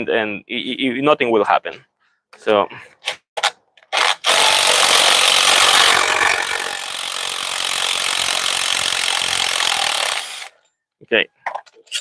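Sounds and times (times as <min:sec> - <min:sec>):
impact wrench running: 0:04.0 - 0:10.5.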